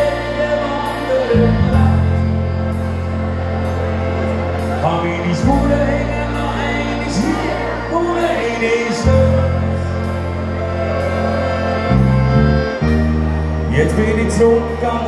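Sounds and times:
person singing: 0:00.0 - 0:03.7, 0:04.5 - 0:12.4
accordion chords: 0:00.0 - 0:15.0.

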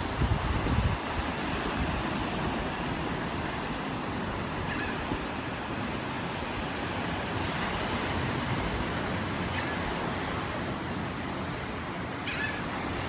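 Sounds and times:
distant surf breaking: 0:00.0 - 0:13.0
bird calling faintly: 0:04.7 - 0:05.1, 0:12.2 - 0:12.7.

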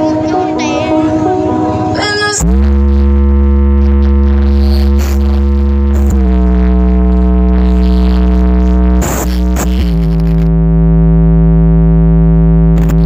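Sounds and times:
loud synthesizer bass tone: 0:00.0 - 0:13.0
short noisy bursts: 0:02.4 - 0:10.5.

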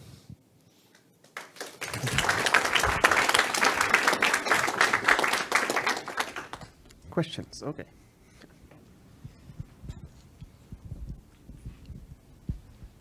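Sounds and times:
audience applauding: 0:01.2 - 0:06.8.

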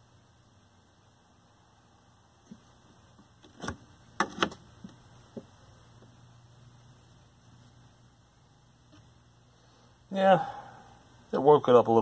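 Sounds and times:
steady low hum: 0:00.0 - 0:12.0
control clicks and knocks: 0:03.4 - 0:05.5.

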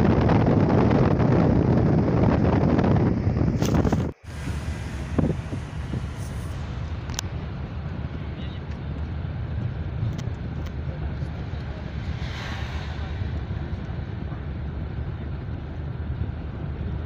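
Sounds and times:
road and engine rumble: 0:00.0 - 0:17.0
brief rushing swell: 0:11.8 - 0:14.2.

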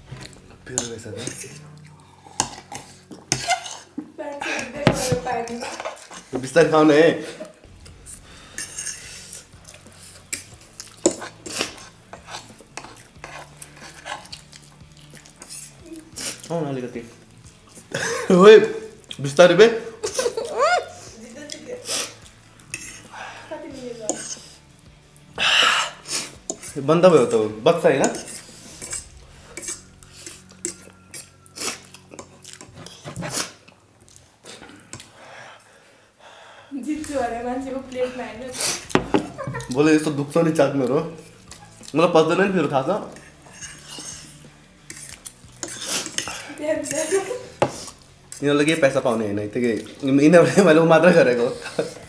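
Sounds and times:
noodles being slurped: 0:08.6 - 0:16.6, 0:25.4 - 0:35.1, 0:43.1 - 0:48.5
forks clinking on ceramic plates: 0:28.0 - 0:29.0, 0:29.6 - 0:31.4.

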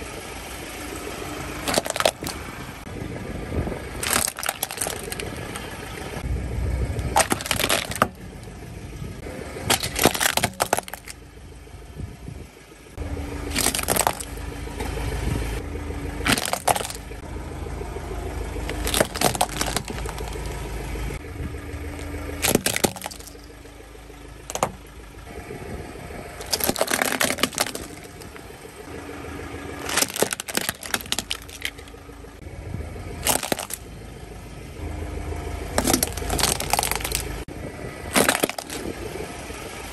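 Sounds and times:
car engine rumble: 0:00.0 - 0:39.9
plastic toys cracking under tyre: 0:01.6 - 0:02.4, 0:04.0 - 0:05.6, 0:07.1 - 0:08.2, 0:09.6 - 0:11.2, 0:13.5 - 0:14.4, 0:16.2 - 0:17.1, 0:18.7 - 0:20.5, 0:22.4 - 0:23.4, 0:24.5 - 0:24.8, 0:26.4 - 0:28.4, 0:29.8 - 0:31.9, 0:33.2 - 0:33.8, 0:35.7 - 0:37.4, 0:38.0 - 0:39.0.

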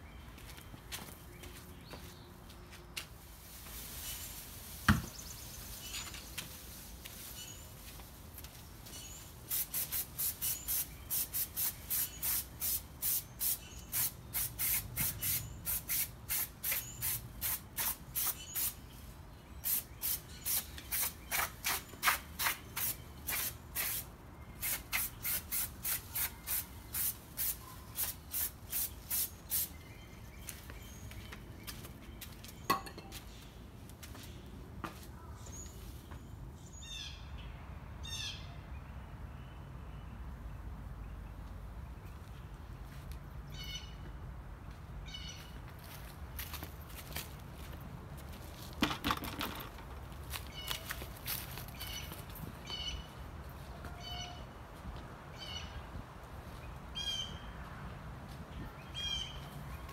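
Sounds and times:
spray paint can bursts: 0:09.5 - 0:18.8, 0:19.6 - 0:29.7.

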